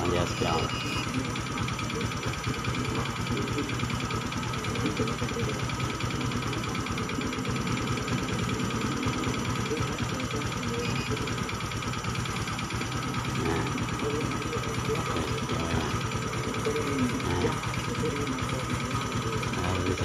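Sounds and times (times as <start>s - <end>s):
motorcycle engine idling: 0.0s - 20.0s.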